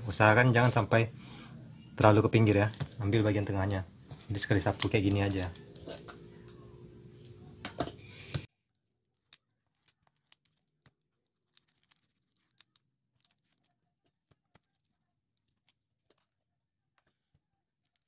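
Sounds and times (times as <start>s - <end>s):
low room hum: 0.0s - 8.4s
hands handling leather strap: 9.2s - 18.0s.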